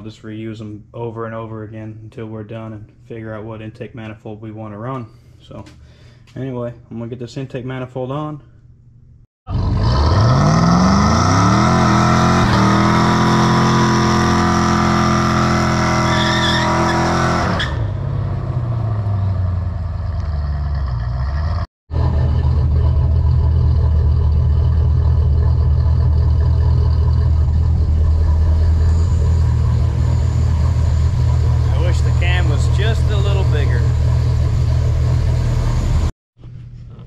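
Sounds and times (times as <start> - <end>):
engine revving high: 9.5 - 36.1
engine low rumble: 17.8 - 37.0.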